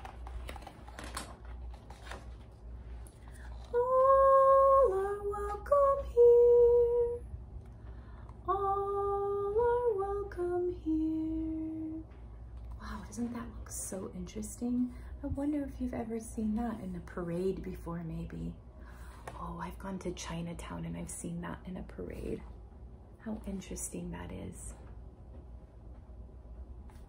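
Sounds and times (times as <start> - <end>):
book page turning: 0.0 - 3.8.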